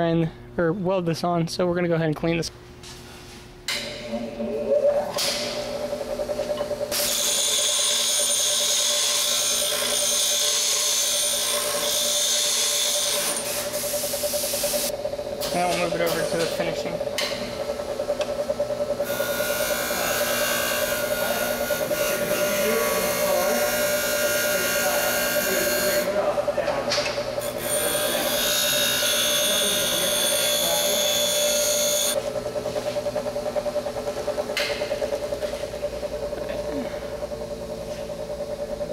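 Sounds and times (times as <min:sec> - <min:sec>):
bench grinder motor hum: 0:06.3 - 0:14.9, 0:18.7 - 0:26.4, 0:27.2 - 0:32.6
metal being ground: 0:19.0 - 0:26.2.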